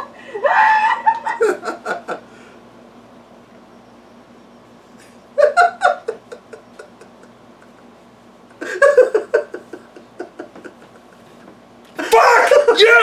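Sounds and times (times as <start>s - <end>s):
man laughing: 0.0s - 2.3s, 5.4s - 11.4s, 12.0s - 13.0s.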